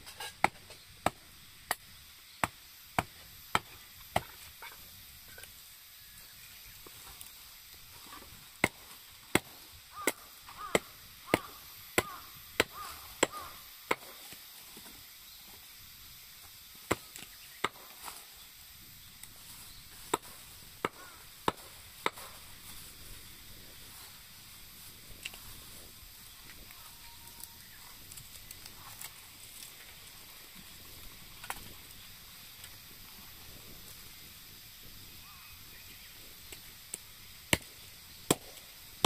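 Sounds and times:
wood being chopped: 2.4 - 4.5, 8.6 - 14.3, 16.9 - 18.2, 20.0 - 22.4, 38.3 - 38.6.

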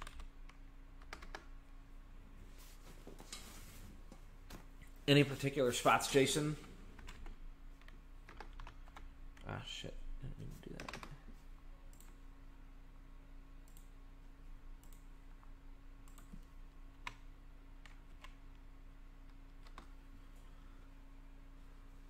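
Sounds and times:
low steady hum: 0.0 - 22.0
computer mouse clicks: 11.9 - 12.2, 13.7 - 13.9, 14.8 - 15.1, 16.0 - 17.2, 19.2 - 19.9.

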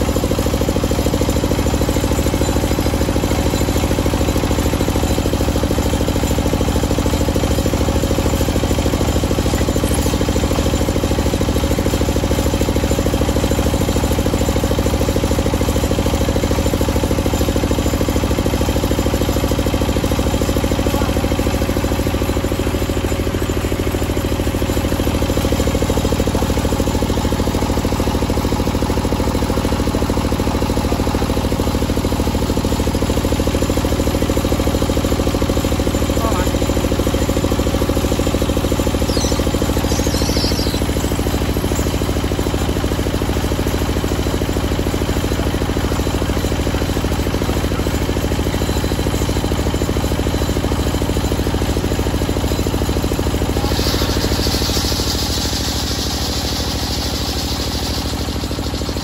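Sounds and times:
table circular saw running: 15.4 - 59.0.

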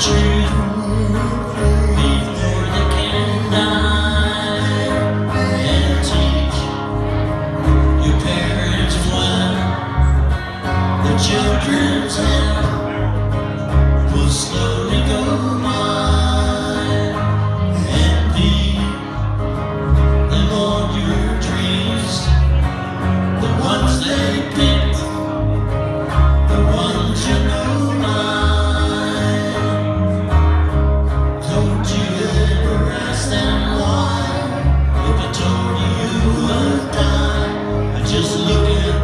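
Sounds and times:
electric bass: 0.0 - 39.0
electric guitar: 0.0 - 39.0
man singing: 0.0 - 39.0.

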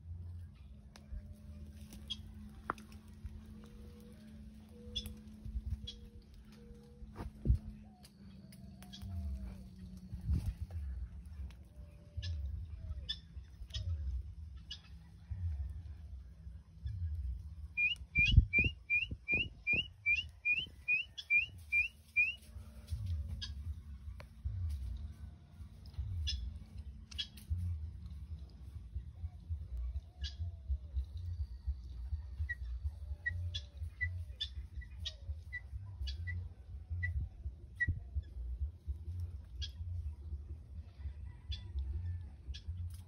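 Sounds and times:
low rumble: 0.0 - 20.4, 22.6 - 43.0
guineafowl harsh clipped calls: 17.8 - 22.5.

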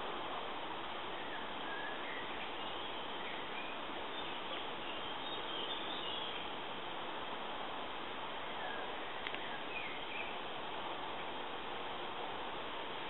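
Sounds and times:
woodland ambience hiss: 0.0 - 13.0
faint bird chirps: 1.2 - 6.5.

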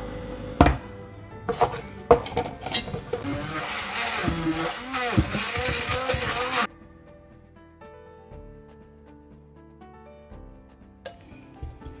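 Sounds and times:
blender running: 0.0 - 0.8, 2.7 - 6.7
background music: 0.0 - 12.0
utensils clinking against bowl: 1.5 - 6.6, 11.1 - 12.0.

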